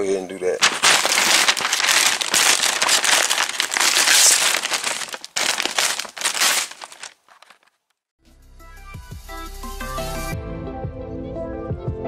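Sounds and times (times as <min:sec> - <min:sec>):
plastic sheeting crinkling: 0:00.6 - 0:07.7.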